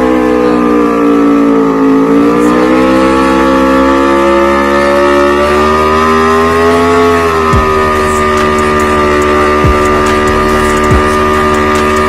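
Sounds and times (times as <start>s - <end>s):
motorcycle engine at high revs: 0.0s - 12.0s.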